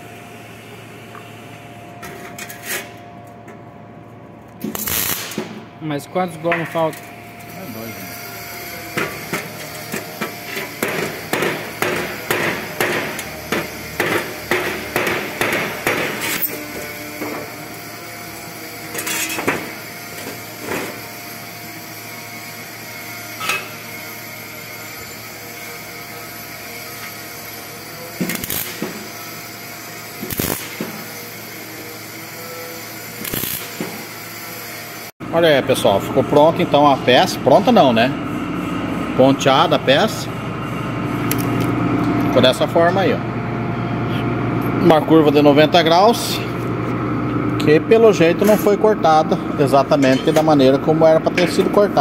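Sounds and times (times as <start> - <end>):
crackling welding bursts: 4.6 - 5.7, 6.8 - 36.5
hammer striking sheet metal: 8.9 - 16.6.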